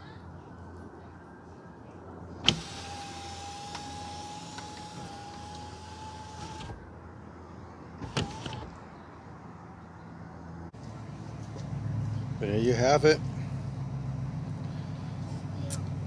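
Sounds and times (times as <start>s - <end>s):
moonroof motor whining: 2.4s - 6.8s, 8.0s - 8.8s.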